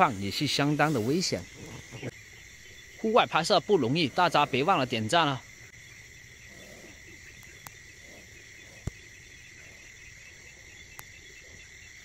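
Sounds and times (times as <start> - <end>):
night insects trilling: 0.0 - 12.0
faint ticks: 6.6 - 11.6.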